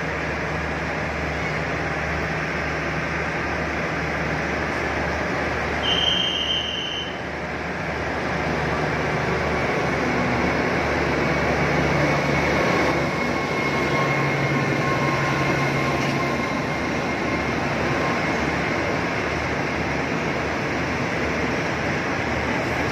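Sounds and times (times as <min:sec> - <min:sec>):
diesel locomotive engine: 0:00.0 - 0:22.9
train wheels rumbling on track: 0:00.0 - 0:22.9
high wheel squeal: 0:05.8 - 0:07.3.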